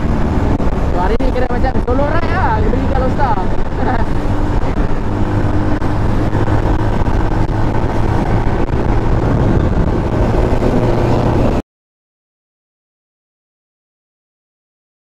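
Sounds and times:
motorcycle engine cruising: 0:00.0 - 0:11.6
wind and road noise: 0:00.0 - 0:11.6.

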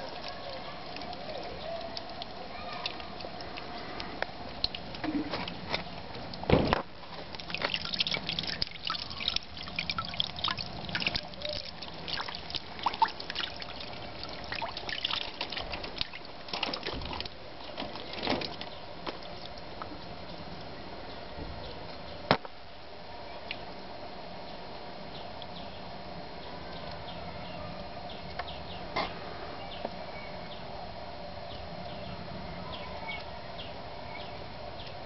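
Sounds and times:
water dripping into a bucket: 0:00.0 - 0:20.7, 0:23.4 - 0:23.8, 0:25.3 - 0:25.6, 0:26.7 - 0:27.1.

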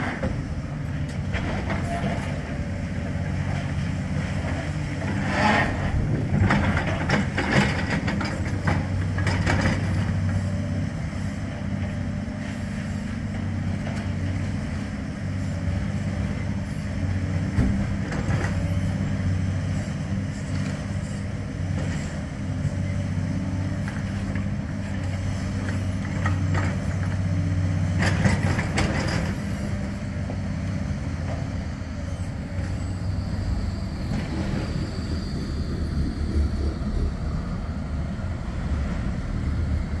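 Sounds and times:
low engine drone: 0:28.0 - 0:40.0
tram approaching: 0:30.1 - 0:40.0
faint high whine: 0:32.1 - 0:39.2.

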